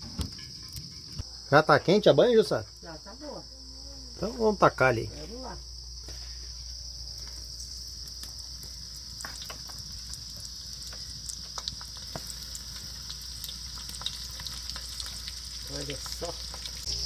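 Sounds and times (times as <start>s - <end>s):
high-pitched insect chorus: 0.0s - 17.0s
fish sizzling in lard: 5.4s - 17.0s.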